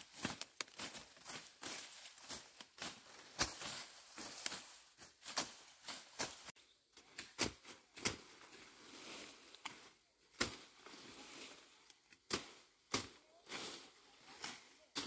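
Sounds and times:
rustling of vegetation: 0.0s - 15.0s.

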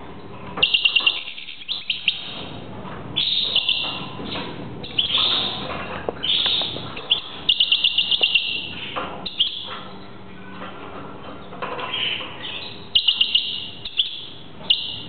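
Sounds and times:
goldfinch twittering song: 0.6s - 2.5s, 3.2s - 4.1s, 6.2s - 9.7s, 11.9s - 15.0s.

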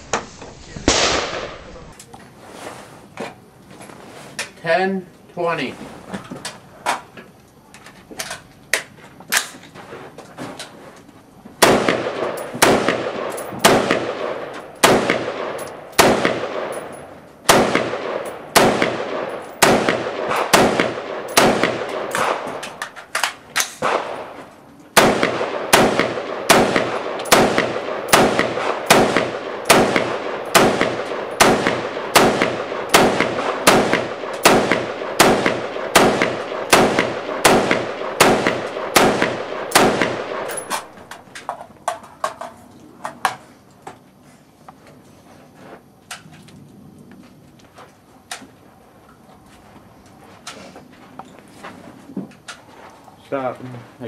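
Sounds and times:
rifle shots with echo: 0.8s - 1.8s, 11.6s - 24.4s, 25.0s - 41.2s.

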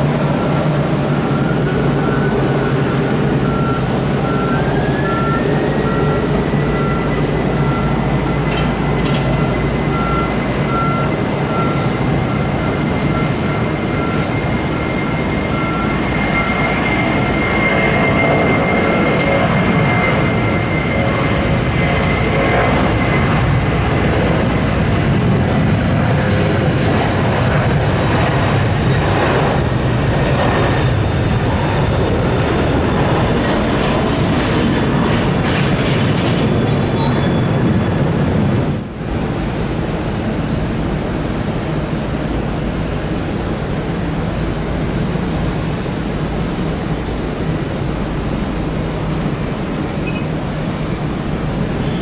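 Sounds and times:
jet engines roaring: 0.0s - 52.0s.

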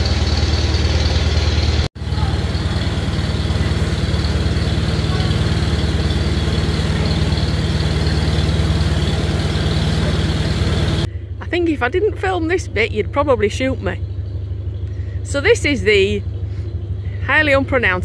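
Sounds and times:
diesel engine running at low revs: 0.0s - 18.0s.

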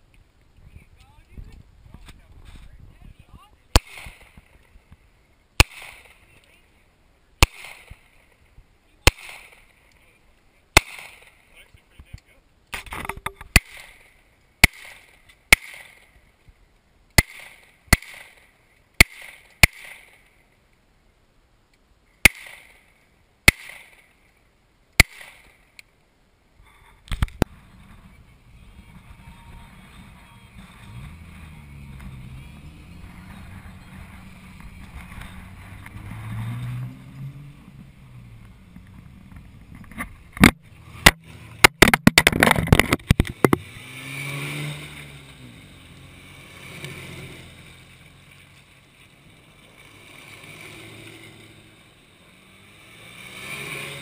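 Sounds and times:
vehicle engine rumbling: 0.0s - 20.8s, 21.5s - 54.0s
rapid burst of loud cracks: 3.7s - 4.8s, 5.6s - 6.4s, 7.4s - 8.4s, 9.0s - 9.9s, 10.7s - 11.6s, 12.7s - 16.2s, 17.1s - 20.4s, 22.2s - 24.2s, 25.0s - 25.8s, 40.4s - 43.7s
handgun shots with echo: 3.8s - 4.4s, 5.6s - 6.2s, 7.4s - 8.0s, 9.1s - 9.7s, 10.8s - 11.4s, 12.8s - 16.1s, 17.2s - 18.4s, 19.0s - 20.2s, 22.2s - 22.8s, 23.5s - 24.0s, 25.0s - 25.6s.

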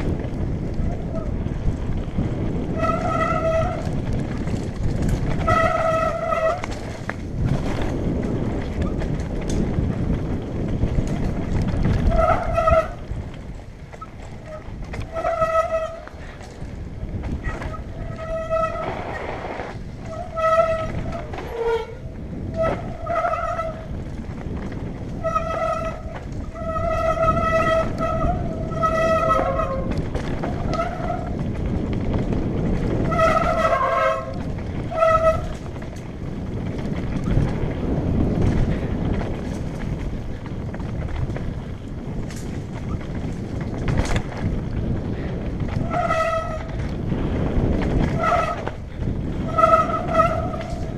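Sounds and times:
tyres rumbling on dirt trail: 0.0s - 50.9s
wind on microphone: 0.0s - 50.9s
bike disc brakes squealing: 2.6s - 4.0s, 4.9s - 7.1s, 11.4s - 13.2s, 13.9s - 16.6s, 17.3s - 24.0s, 25.0s - 31.5s, 32.8s - 35.9s, 45.2s - 46.9s, 47.8s - 50.9s.

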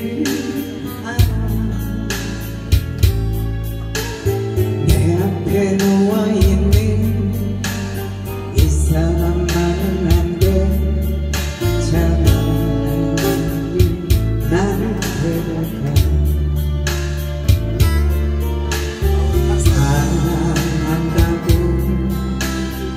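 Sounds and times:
woman singing into microphone: 0.0s - 2.5s, 4.8s - 7.4s, 8.5s - 16.4s, 19.2s - 22.9s
acoustic guitar: 0.0s - 22.9s
bass and steady beat: 0.0s - 22.9s.

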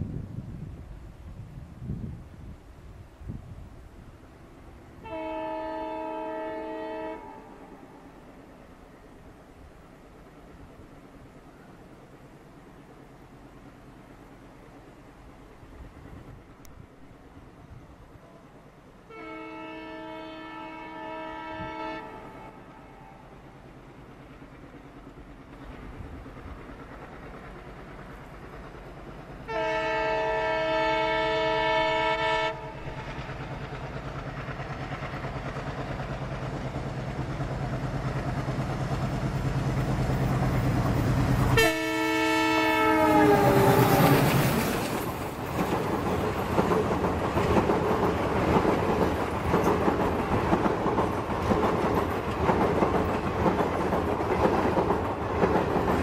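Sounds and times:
diesel locomotive engine drone: 0.0s - 56.0s
train chord horn: 5.0s - 8.2s, 18.2s - 23.5s, 29.5s - 33.2s, 41.5s - 44.6s
train wheels clattering on track: 21.5s - 56.0s.

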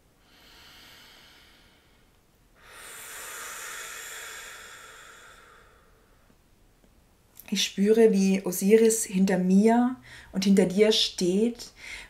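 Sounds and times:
woman breathing deeply: 0.2s - 6.4s, 10.0s - 10.4s, 11.8s - 12.0s.

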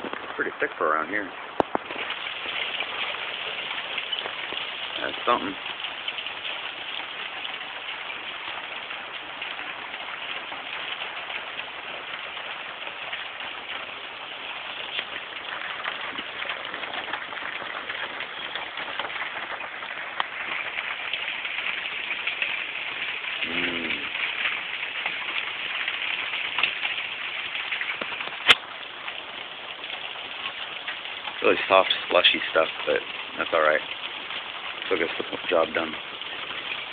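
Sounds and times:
hail pattering: 0.0s - 36.9s
short low call: 23.4s - 24.2s.

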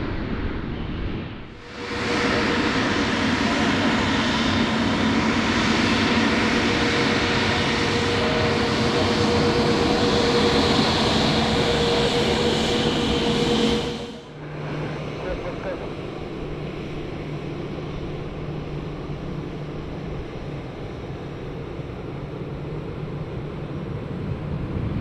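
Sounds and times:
jet engine rush: 0.0s - 25.0s
higher steady tone: 8.1s - 19.6s.

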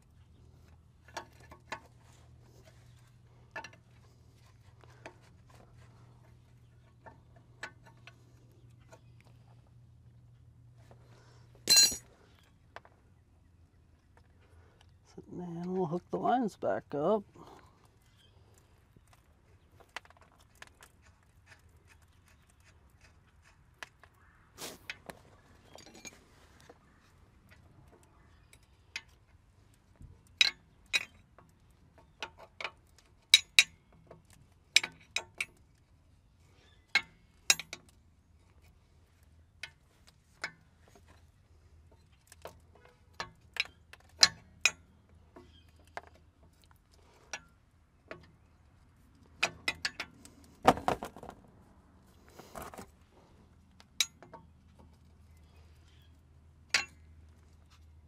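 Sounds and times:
metal wrench clinking on fittings: 11.7s - 12.1s, 56.7s - 57.0s.

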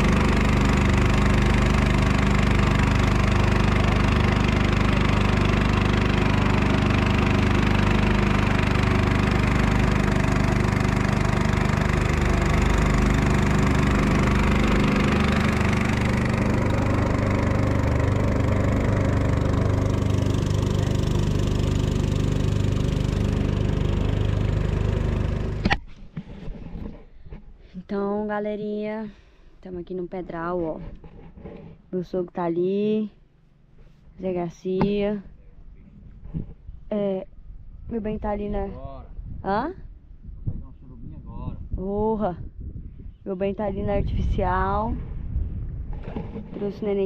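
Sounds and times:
boat rushing through water: 0.0s - 25.7s
outboard motor running: 0.0s - 27.5s, 43.8s - 47.0s.

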